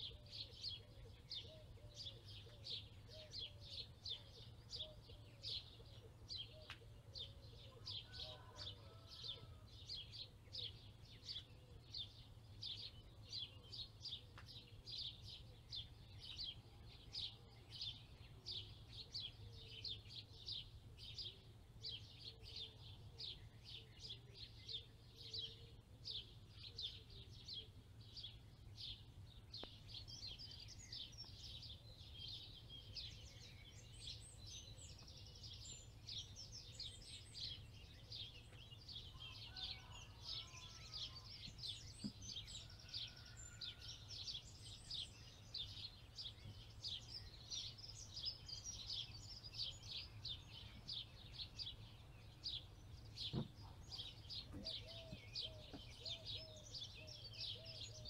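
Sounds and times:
small bird chirping: 29.6s - 58.0s.

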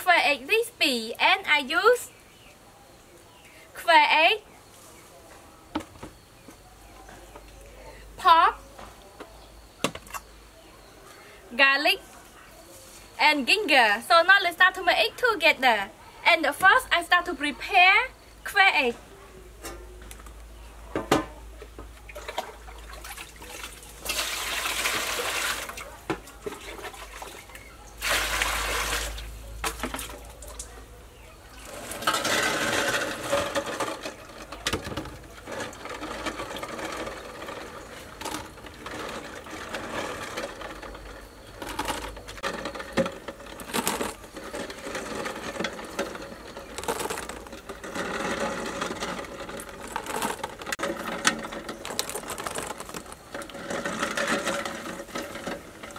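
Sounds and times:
water splashing and sloshing: 22.1s - 30.6s
water pouring into metal basin: 22.2s - 25.8s, 26.8s - 29.3s.

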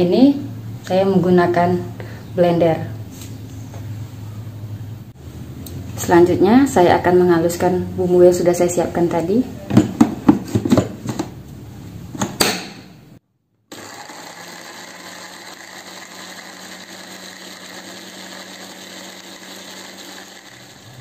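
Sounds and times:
electric blender grinding: 13.7s - 21.0s.

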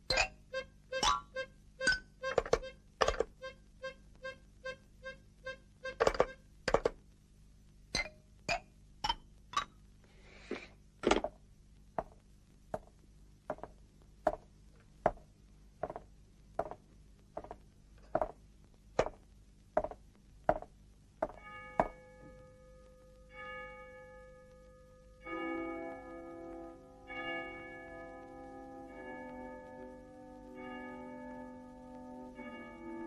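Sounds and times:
cartoon footsteps with clinking ring: 0.1s - 0.4s, 1.0s - 3.3s, 5.9s - 6.9s, 8.0s - 9.7s, 13.5s - 14.5s, 15.8s - 16.8s, 19.8s - 22.4s.

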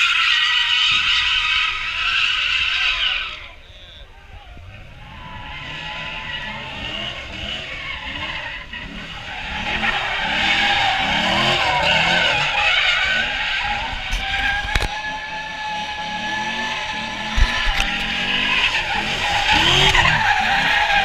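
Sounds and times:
tyres screeching on asphalt: 0.0s - 21.0s
car engine revving: 4.6s - 21.0s.

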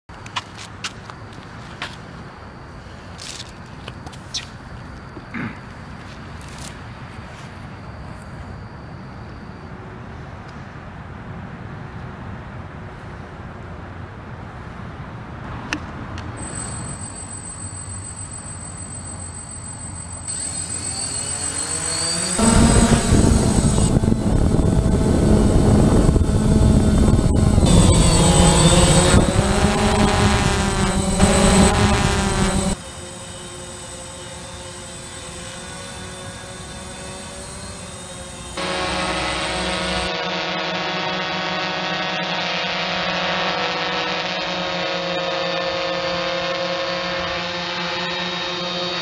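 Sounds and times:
drone hovering hum: 16.4s - 49.0s
high-pitched whine: 16.4s - 49.0s
rushing wind: 22.0s - 32.8s.

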